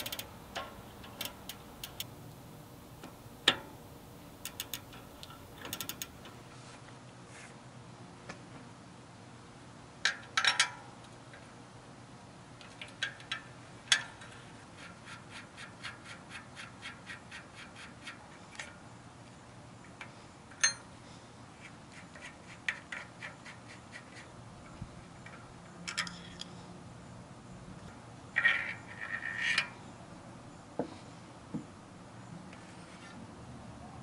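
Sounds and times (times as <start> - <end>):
light ticks: 0.0 - 6.4
small metal clicks and clinks: 0.0 - 6.4, 25.2 - 26.6.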